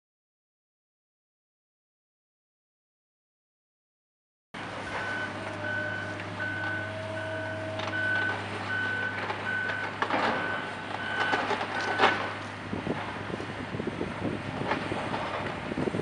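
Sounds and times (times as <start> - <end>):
diesel engines humming: 4.6 - 16.0
reversing alarm beeping: 4.9 - 12.3.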